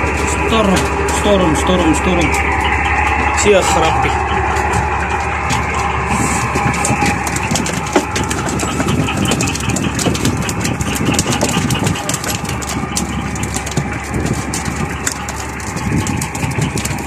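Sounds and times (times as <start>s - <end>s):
boat engine idling: 0.0s - 17.0s
sharp clicks and knocks: 4.1s - 17.0s.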